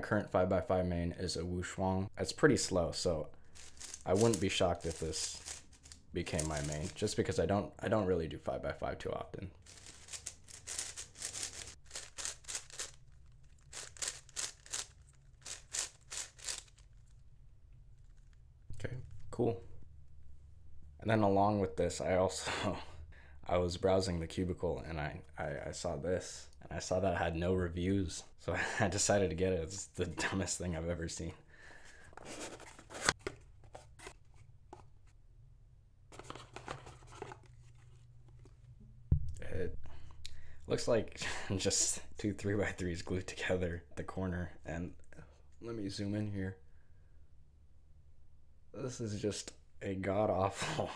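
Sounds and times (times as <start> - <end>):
soft rustling and plastic clatter: 36.1 - 38.7.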